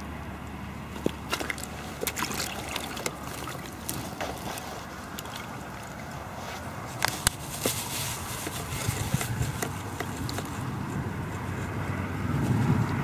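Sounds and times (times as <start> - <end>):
clicks and rustles of handling: 0.9 - 11.5
wind rumble on microphone: 4.0 - 13.0.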